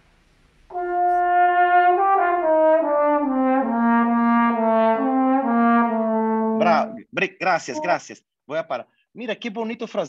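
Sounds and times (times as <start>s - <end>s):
trombone playing slow phrase: 0.7s - 7.0s.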